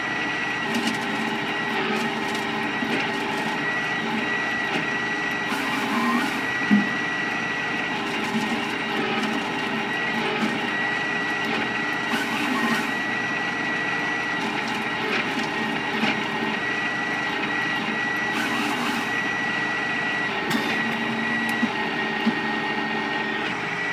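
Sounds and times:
wood chipper running: 0:00.0 - 0:23.9.

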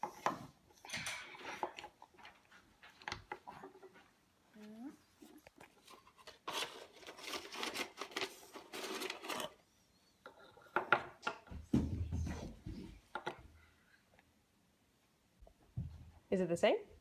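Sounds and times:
wooden blocks clacking and scraping: 0:00.0 - 0:04.1, 0:05.6 - 0:09.6, 0:10.2 - 0:13.6.

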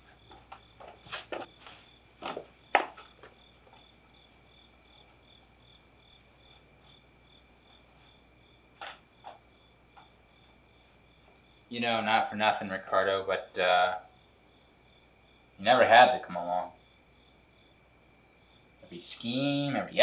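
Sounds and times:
footsteps: 0:00.0 - 0:04.0
crickets chirping: 0:00.0 - 0:20.0.

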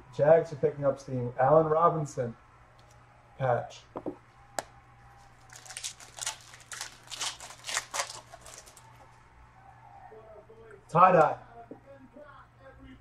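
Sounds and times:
foil wrapper crinkling: 0:05.4 - 0:09.0.

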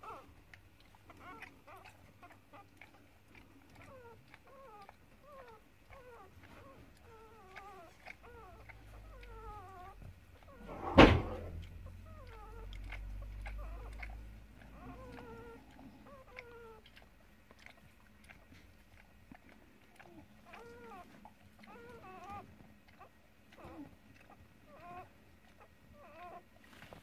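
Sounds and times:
puppy squeaking and whining: 0:00.0 - 0:27.0
loud thump: 0:10.7 - 0:11.5.

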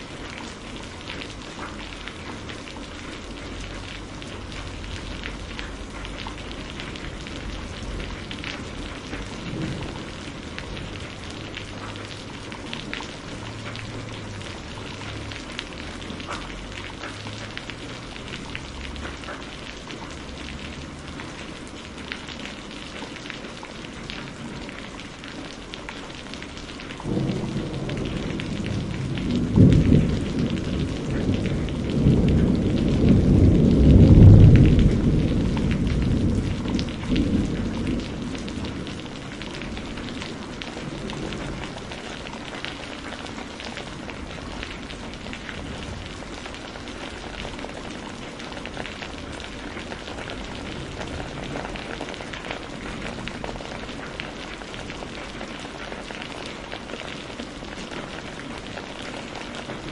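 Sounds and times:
drips and patter: 0:00.0 - 0:59.9
steady rain falling: 0:00.0 - 0:59.9
thunder roll: 0:06.6 - 0:12.2, 0:27.1 - 0:42.0.

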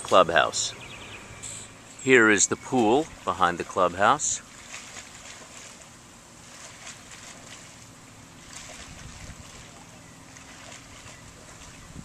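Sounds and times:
wind on microphone: 0:08.7 - 0:09.7, 0:11.4 - 0:12.0.

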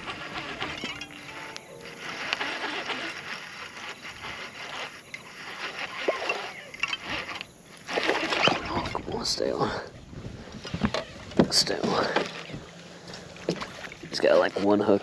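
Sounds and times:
fishing reel cranking: 0:00.0 - 0:09.4, 0:13.6 - 0:15.0
water lapping around boat: 0:00.0 - 0:15.0.

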